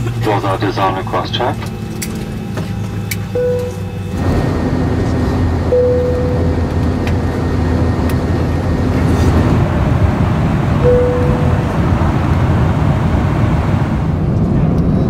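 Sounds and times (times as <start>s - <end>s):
low rumble of cabin noise: 0.0s - 15.0s
seatbelt sign chime: 3.2s - 4.1s, 5.7s - 6.6s, 10.8s - 11.7s.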